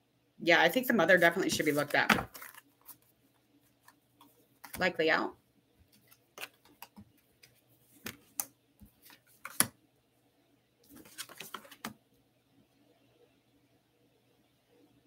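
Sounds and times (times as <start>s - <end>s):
cards flicking and snapping: 6.0s - 9.7s.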